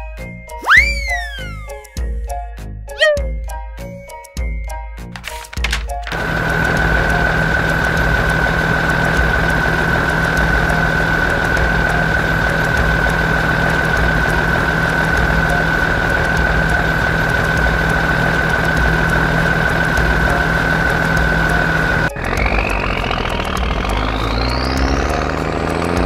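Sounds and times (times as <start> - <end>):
road roller engine running: 6.0 - 26.0.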